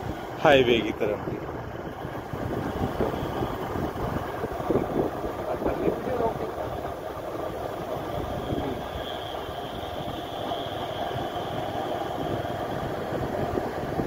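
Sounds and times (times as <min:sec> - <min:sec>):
faint high whine: 0:00.0 - 0:14.0
vehicle engine and road noise: 0:00.0 - 0:14.0.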